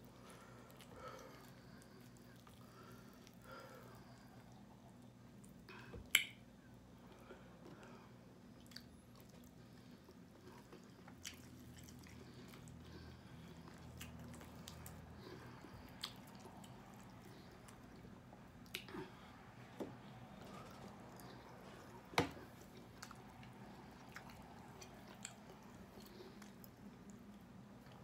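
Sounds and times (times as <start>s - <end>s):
chewing: 0.3s - 6.2s, 8.6s - 19.4s, 20.3s - 28.0s
wet clicks and smacks: 5.4s - 6.4s.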